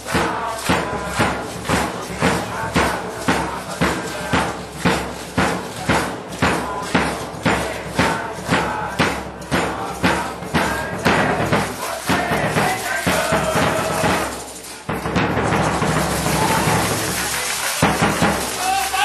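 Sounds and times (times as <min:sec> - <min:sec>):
music with percussion beat: 0:00.0 - 0:19.0.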